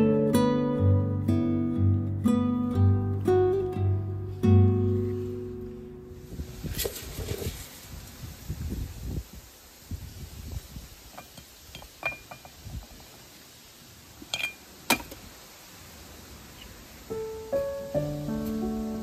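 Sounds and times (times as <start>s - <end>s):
soft piano music: 0.0s - 6.4s, 17.0s - 19.0s
light clinks and taps: 11.1s - 12.6s.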